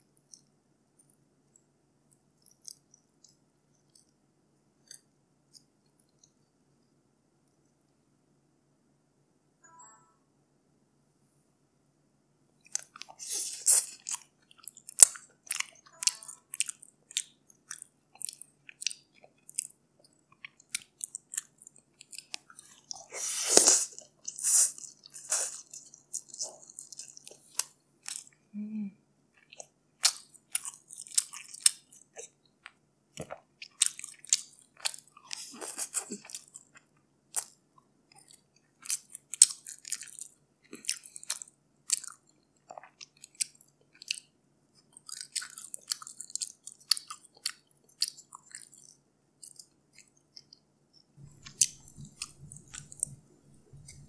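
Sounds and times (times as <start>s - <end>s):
eating clicks and crackles: 2.1s - 4.2s, 12.6s - 28.4s, 29.4s - 54.0s
person chewing food: 2.1s - 4.2s, 4.8s - 6.5s, 12.6s - 28.4s, 29.4s - 54.0s.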